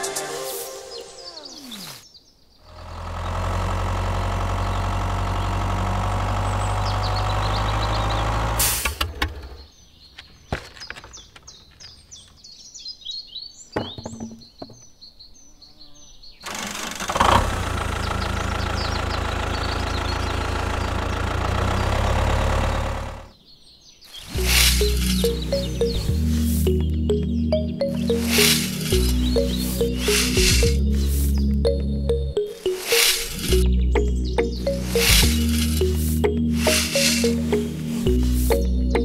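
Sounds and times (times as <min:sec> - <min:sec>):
birds chirping: 0:00.0 - 0:39.0
tractor engine running: 0:02.7 - 0:09.4, 0:16.4 - 0:23.4, 0:24.2 - 0:39.0.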